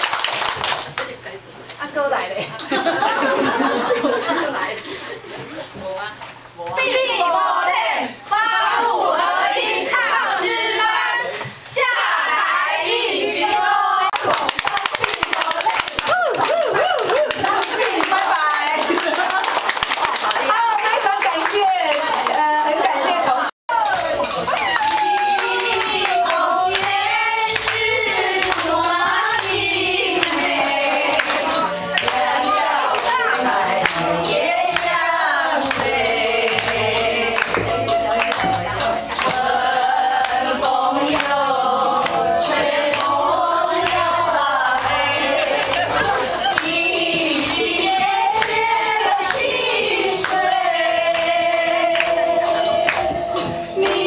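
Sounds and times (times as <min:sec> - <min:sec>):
hand clapping: 0:00.0 - 0:01.1, 0:14.1 - 0:22.9, 0:23.8 - 0:29.6, 0:30.2 - 0:33.2, 0:35.6 - 0:36.8, 0:37.4 - 0:39.5, 0:41.1 - 0:41.4, 0:42.9 - 0:43.1, 0:43.8 - 0:44.1, 0:45.6 - 0:48.6, 0:51.9 - 0:52.2, 0:52.8 - 0:54.0
sharp hand claps: 0:00.0 - 0:01.1, 0:14.2 - 0:21.6
women singing into microphones: 0:24.0 - 0:54.0.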